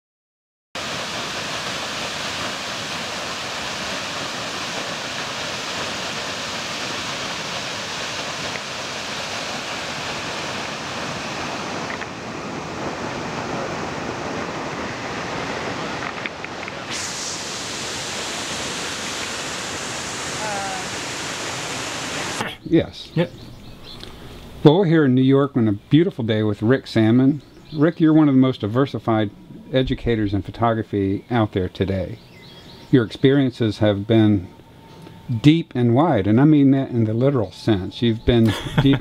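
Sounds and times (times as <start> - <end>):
water pouring down spillway: 0.8 - 12.2, 14.4 - 22.4.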